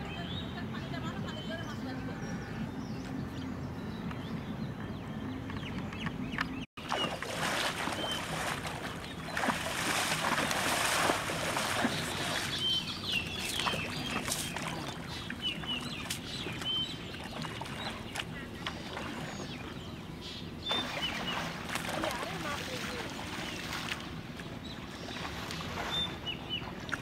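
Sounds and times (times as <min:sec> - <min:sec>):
people wading through water: 0:06.8 - 0:27.0.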